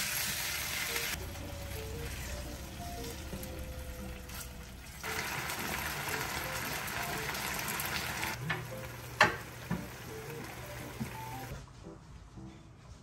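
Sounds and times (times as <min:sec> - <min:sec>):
meat sizzling in a pan: 0:00.0 - 0:01.1, 0:05.0 - 0:08.4.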